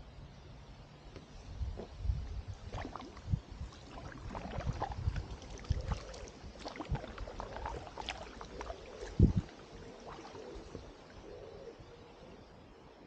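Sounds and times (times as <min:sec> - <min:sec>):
paddle splashing in river: 0:01.7 - 0:11.4.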